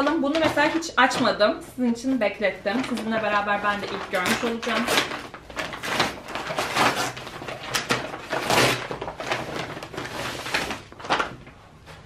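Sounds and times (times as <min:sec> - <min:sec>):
paper bag crinkling: 0:02.6 - 0:11.6.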